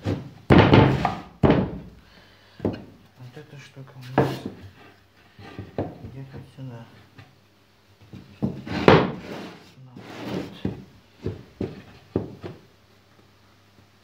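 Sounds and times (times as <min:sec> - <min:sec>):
wood scraping: 0:00.0 - 0:01.8, 0:03.9 - 0:07.3, 0:08.0 - 0:12.6
wooden knocks and thumps: 0:00.0 - 0:02.0, 0:02.6 - 0:03.0, 0:04.0 - 0:07.3, 0:08.0 - 0:09.4, 0:10.1 - 0:12.7.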